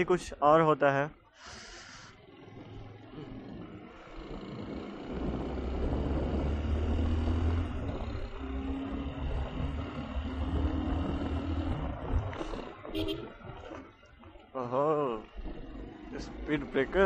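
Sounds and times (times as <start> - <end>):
motorcycle engine running: 1.4 - 17.0
wind noise on microphone: 4.6 - 8.3.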